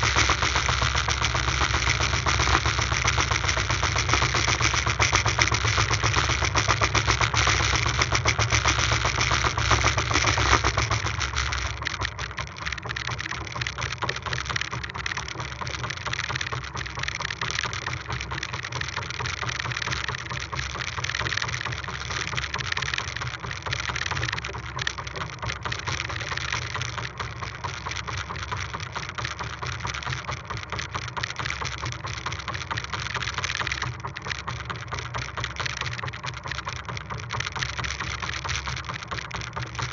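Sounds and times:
boat motor running: 0.0 - 39.9.

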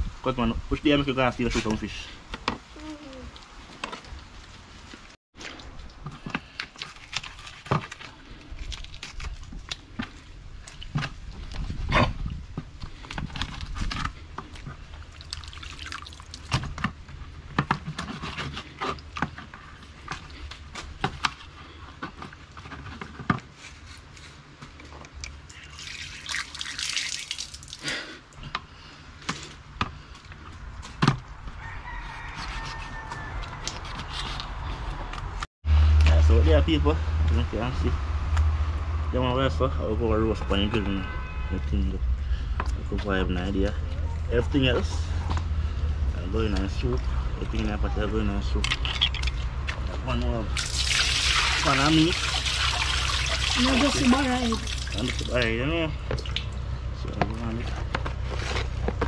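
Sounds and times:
water dripping and splashing: 14.5 - 16.9, 25.2 - 28.0, 50.5 - 56.7
running water rushing: 50.6 - 55.6.

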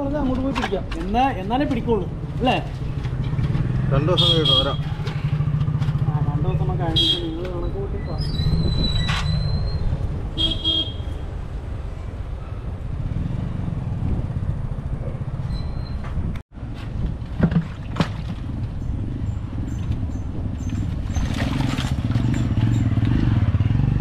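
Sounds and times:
engine running steadily: 2.2 - 7.2
short sharp squeaks: 8.1 - 10.0, 15.4 - 16.2.

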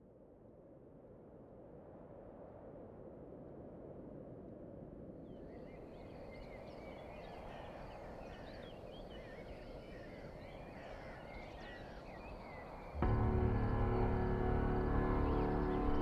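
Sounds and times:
small birds chirping: 5.4 - 16.0
low background rumble: 13.0 - 16.0.

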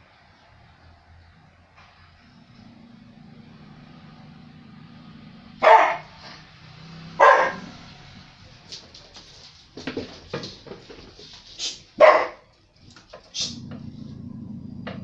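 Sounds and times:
dog growling: 2.2 - 5.6, 13.3 - 15.0
dog barking: 5.6 - 6.4, 7.1 - 7.8, 12.0 - 12.5.

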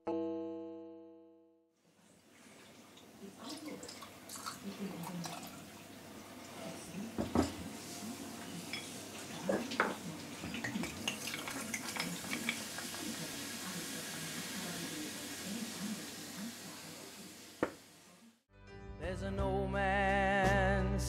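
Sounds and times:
tonic water pouring and fizzing: 1.9 - 7.1, 9.0 - 17.9.

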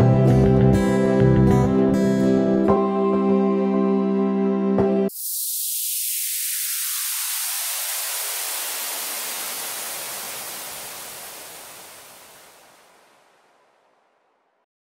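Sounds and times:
white-noise sweep: 5.1 - 14.6.

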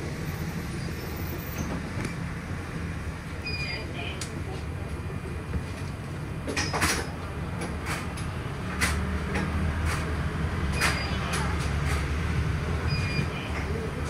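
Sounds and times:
bus engine and road rumble: 0.0 - 14.0
bus body rattling and knocking: 5.6 - 12.6.

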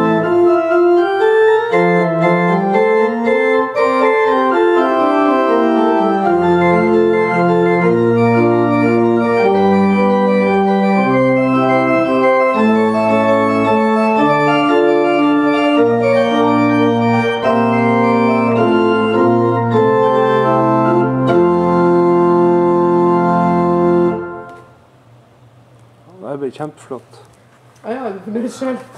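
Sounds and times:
pipe organ chords: 0.0 - 24.8.

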